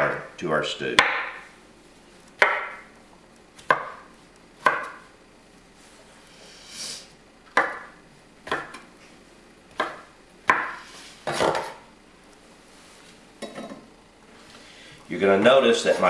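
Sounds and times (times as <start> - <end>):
knife chopping on wooden board: 1.0 - 1.4, 2.4 - 2.8, 3.6 - 5.0, 7.5 - 8.8, 9.8 - 11.8.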